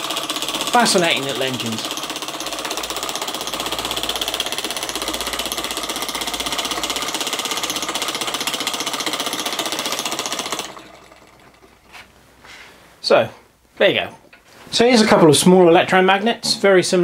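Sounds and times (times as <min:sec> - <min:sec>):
toy engine rapid clatter: 0:00.0 - 0:11.7.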